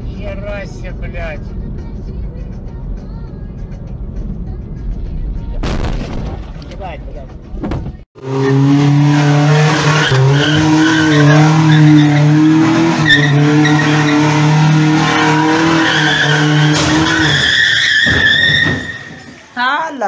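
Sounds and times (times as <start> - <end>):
truck engine at high revs: 8.2 - 19.0
tyres squealing: 9.7 - 19.6.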